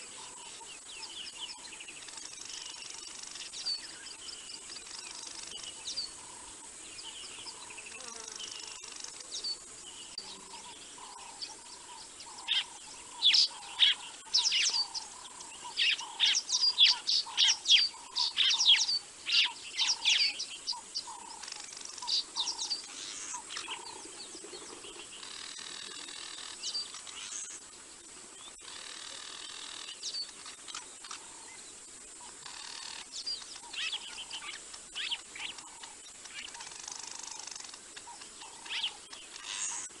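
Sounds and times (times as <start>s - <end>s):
birds chirping and whistling: 8.5s - 27.6s, 32.2s - 39.9s.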